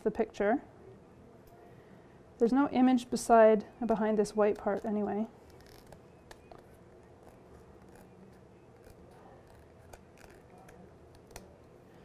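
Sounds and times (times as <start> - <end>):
scissors snipping: 7.2 - 11.6.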